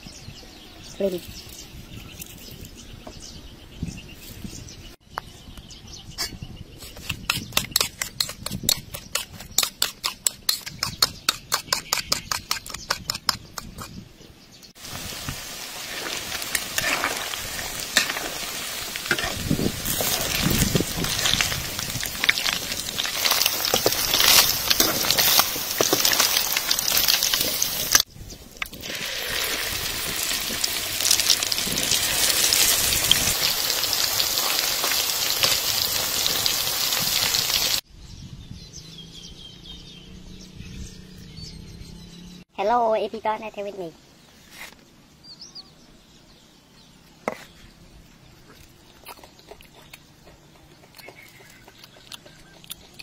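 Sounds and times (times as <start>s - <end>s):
fish deep-frying in oil: 14.8s - 37.8s.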